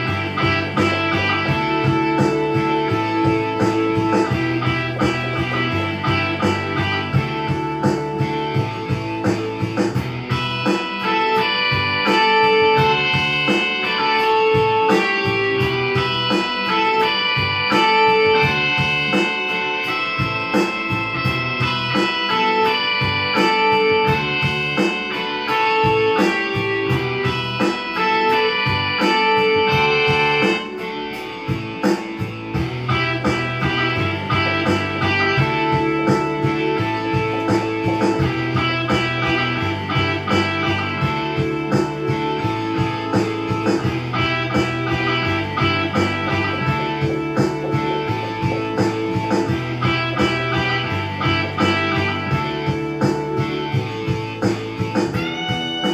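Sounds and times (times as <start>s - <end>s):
deep bass: 0.0s - 10.6s, 31.5s - 55.6s
digital piano riff: 0.0s - 55.9s
rock backing track with beat: 0.0s - 55.9s.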